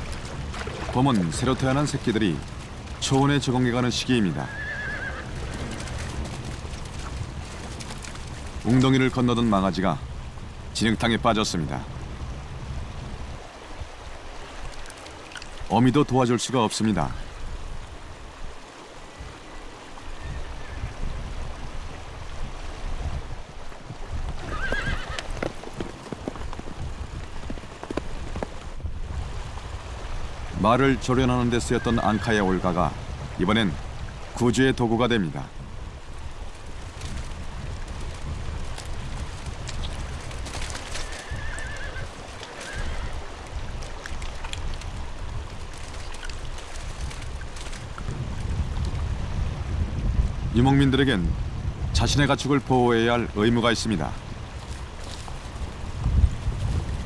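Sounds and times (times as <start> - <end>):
splashing and churning in mud: 0.0 - 3.5, 5.4 - 9.2, 36.5 - 48.9
low wind rumble: 0.0 - 57.0
horse whinnying: 4.4 - 6.1, 24.3 - 25.6, 31.7 - 32.4, 40.9 - 43.3.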